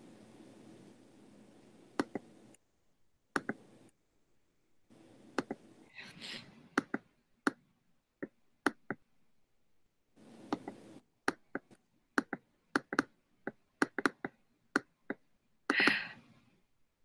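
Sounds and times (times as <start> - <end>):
computer mouse clicking: 1.9 - 2.6, 3.3 - 4.0, 5.4 - 5.6, 6.8 - 7.6, 8.2 - 9.0, 10.5 - 16.0.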